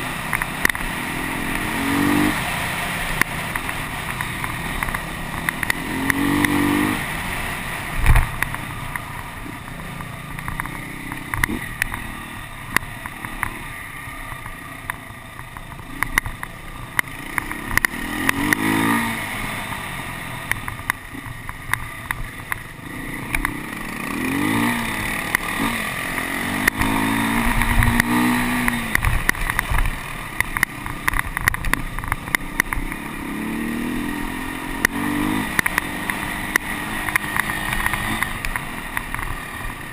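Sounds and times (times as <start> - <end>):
motorcycle engine revving: 0.0 - 39.9
sharp clicks and knocks: 0.3 - 0.9, 3.1 - 6.7, 8.0 - 9.3, 10.0 - 12.1, 12.7 - 18.8, 23.3 - 23.6, 24.6 - 33.1, 34.8 - 39.5.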